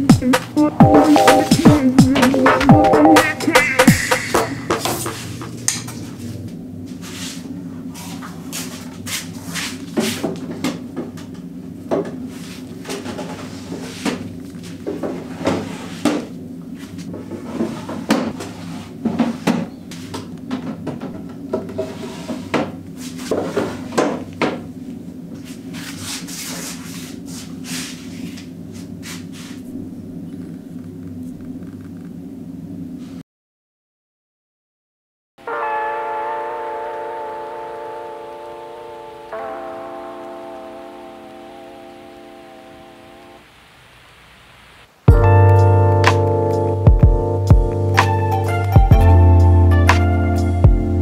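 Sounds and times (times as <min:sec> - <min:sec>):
low hum: 0:00.0 - 0:08.0, 0:29.6 - 0:32.9, 0:36.0 - 0:43.7.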